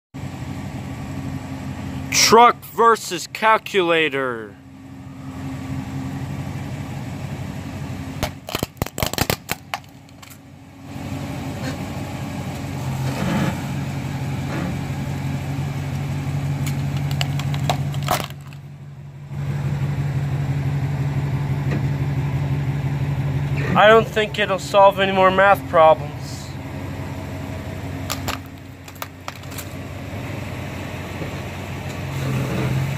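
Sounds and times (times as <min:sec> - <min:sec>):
truck engine running: 0:00.2 - 0:32.9
plastic cracking and crunching: 0:08.2 - 0:10.4, 0:16.6 - 0:18.6, 0:28.1 - 0:29.8.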